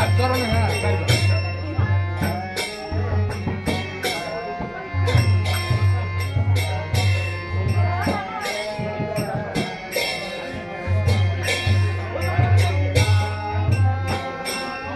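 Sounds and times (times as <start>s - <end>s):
drum: 0.0s - 14.8s
jingling metal percussion: 0.0s - 14.9s.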